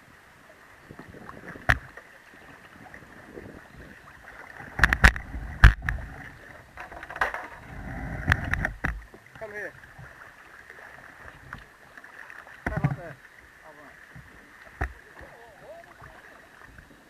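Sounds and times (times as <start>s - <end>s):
water sloshing: 0.0s - 17.0s
kayaks knocking on concrete: 6.7s - 9.5s, 12.6s - 13.2s.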